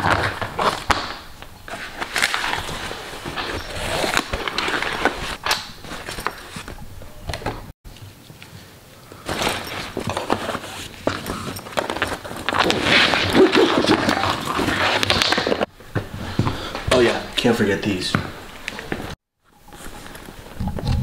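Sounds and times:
fabric rustling and scraping: 0:01.7 - 0:06.8, 0:09.2 - 0:16.4.

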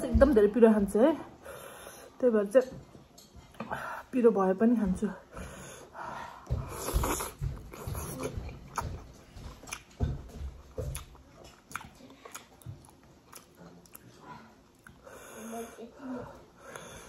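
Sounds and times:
person chewing a dumpling: 0:06.4 - 0:15.3.

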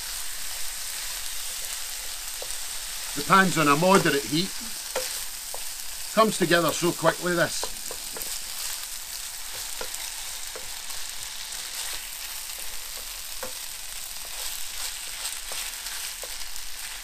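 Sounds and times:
rice sizzling in a frying pan: 0:00.0 - 0:17.0
wooden spoon clicking on pan: 0:04.9 - 0:05.7, 0:07.6 - 0:08.4, 0:09.4 - 0:10.8, 0:12.6 - 0:13.6.

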